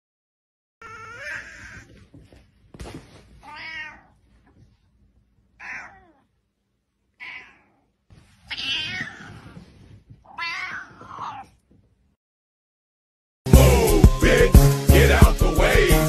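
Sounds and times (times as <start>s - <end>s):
cat meowing: 0.8s - 2.0s, 3.4s - 4.3s, 5.6s - 6.4s, 7.1s - 9.6s, 10.2s - 11.6s.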